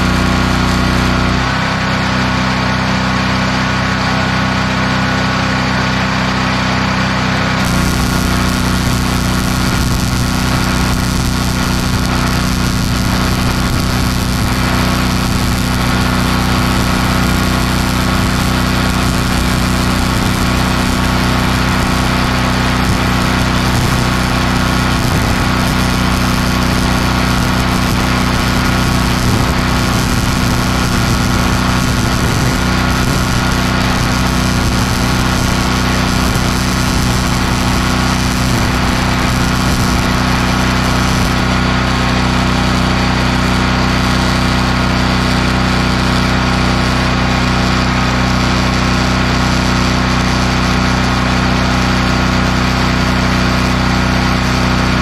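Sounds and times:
small engine running: 0:00.0 - 0:55.0
welder arc crackling hiss: 0:07.6 - 0:41.6.

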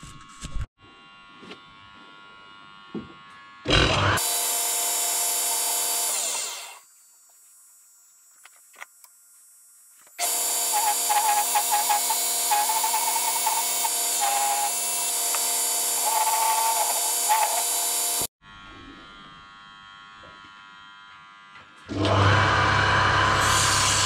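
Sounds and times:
lathe motor whining: 0:10.0 - 0:18.3, 0:21.8 - 0:24.0.

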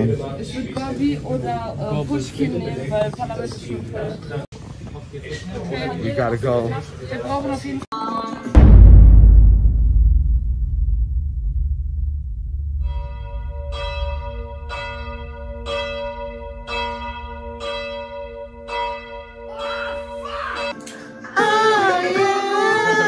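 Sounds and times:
low rumble: 0:08.6 - 0:19.4
deep bell tolling: 0:08.6 - 0:20.7.

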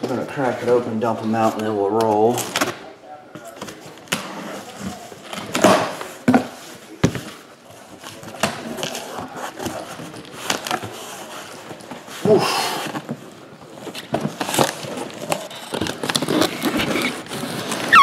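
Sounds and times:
knocks thumps and scrapes of boxes: 0:03.4 - 0:07.4.

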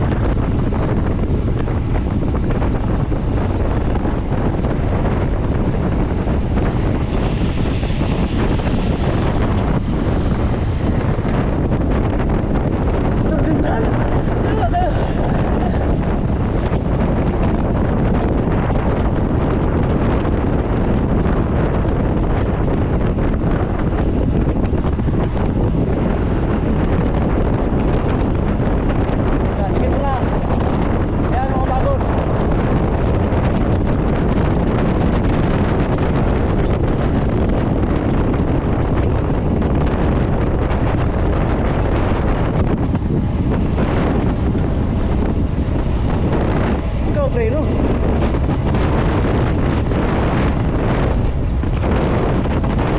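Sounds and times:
wind buffeting microphone: 0:00.0 - 0:52.9.

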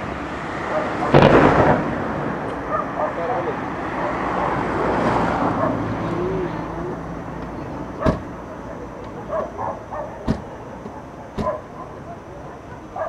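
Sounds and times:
fireworks rumble: 0:00.0 - 0:13.0
sharp firework bang: 0:01.0 - 0:02.5.

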